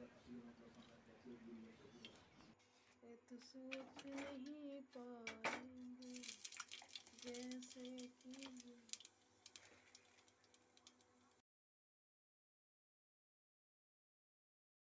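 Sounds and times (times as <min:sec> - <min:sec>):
seeds crackling in hot oil: 0:05.9 - 0:11.4.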